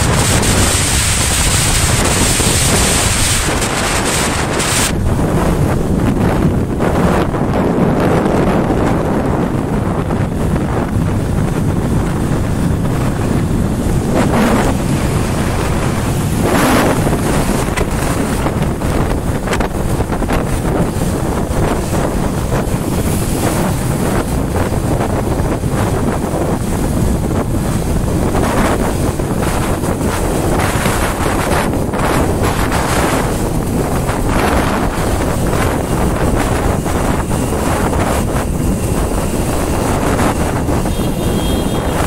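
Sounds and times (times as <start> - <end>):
road noise: 0.0 - 42.0
wind buffeting microphone: 0.0 - 42.0.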